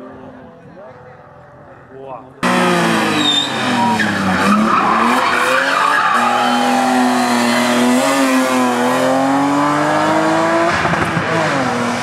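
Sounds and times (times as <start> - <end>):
tyres skidding: 2.4 - 12.0.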